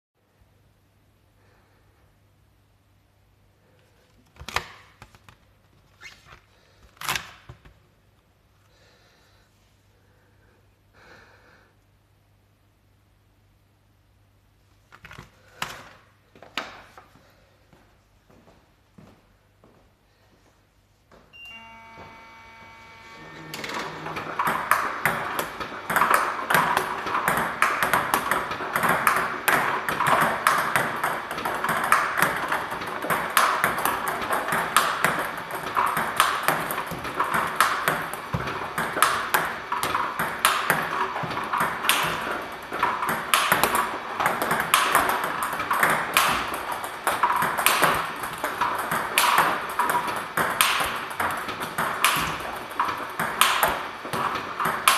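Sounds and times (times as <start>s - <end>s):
brief hum: 21.3s - 24.3s
table tennis balls clicking: 23.3s - 54.9s.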